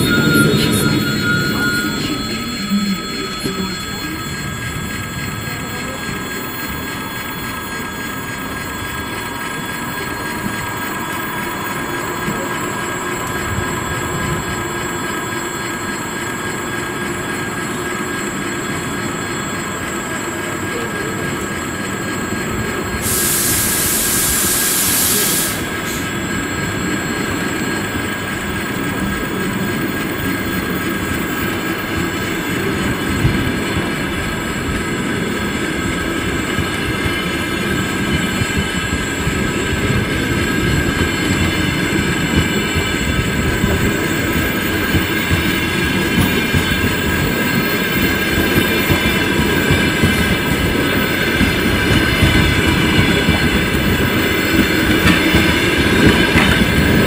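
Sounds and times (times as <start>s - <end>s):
steady high tones: 0.0s - 57.0s
train wheels rumbling on rails: 0.0s - 57.0s
loud hiss: 22.9s - 26.2s.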